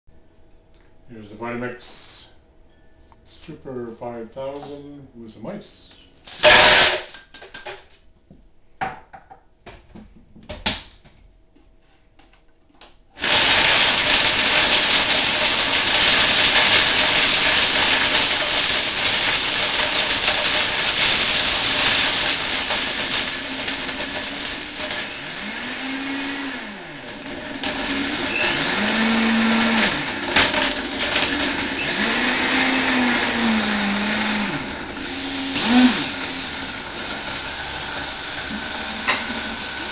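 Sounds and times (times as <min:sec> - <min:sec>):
blender crushing ice: 0:06.3 - 0:07.8, 0:13.2 - 0:39.9.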